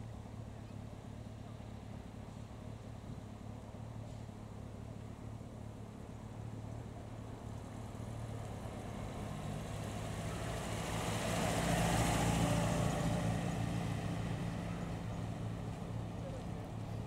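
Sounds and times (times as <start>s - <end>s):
car engine driving past: 8.6s - 16.5s.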